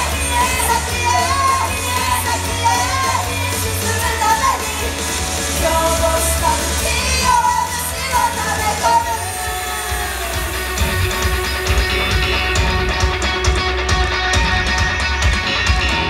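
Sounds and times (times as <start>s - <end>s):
group singing live: 0.0s - 12.7s
pop-rock backing music: 0.0s - 16.0s.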